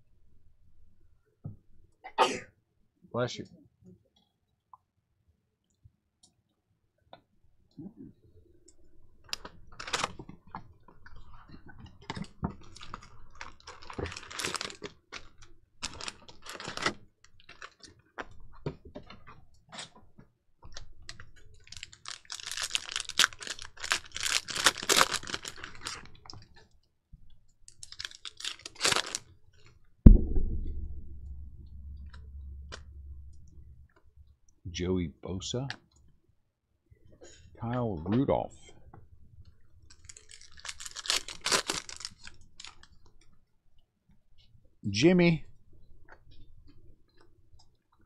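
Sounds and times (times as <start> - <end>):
plastic wrappers crinkling: 12.1 - 17.9, 21.1 - 26.4, 27.7 - 29.3, 39.9 - 42.9
loud thump: 30.1 - 33.9
low hum: 30.1 - 34.4.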